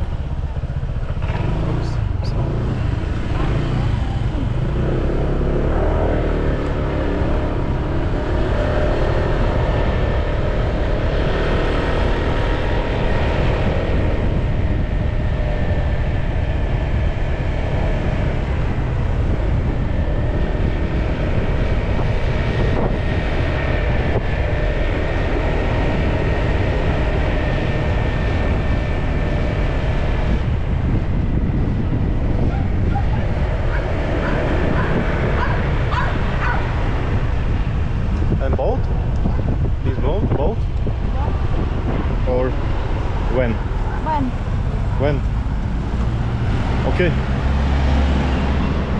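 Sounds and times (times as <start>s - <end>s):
scooter engine running: 0.0s - 37.6s
wind rumble on microphone: 0.0s - 48.9s.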